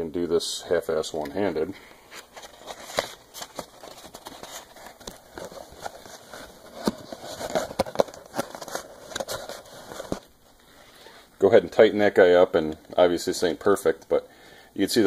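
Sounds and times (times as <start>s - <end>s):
thin cardboard crinkling and tapping: 2.2s - 10.3s.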